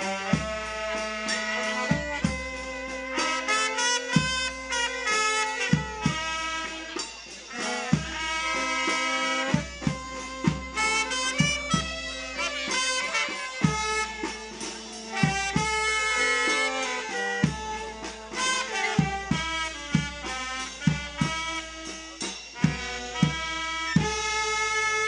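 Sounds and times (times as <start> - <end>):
brass band playing: 0.0 - 25.0
saxophones: 0.0 - 25.0
trumpet: 0.0 - 25.0
bass drum beating: 9.6 - 13.0.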